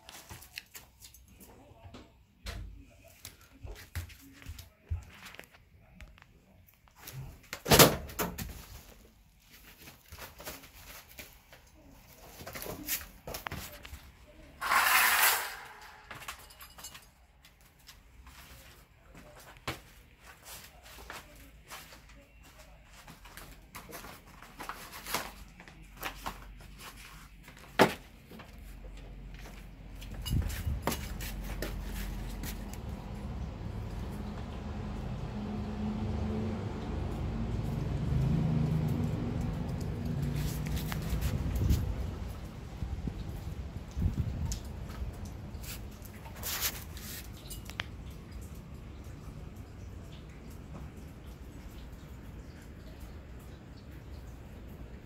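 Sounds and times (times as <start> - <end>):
bottle clattering on tile floor: 14.6 - 17.2.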